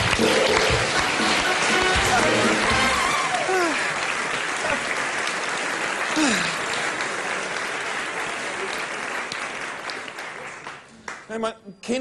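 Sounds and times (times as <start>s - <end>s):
audience applauding: 0.0s - 11.4s
crowd whooping: 1.6s - 5.0s.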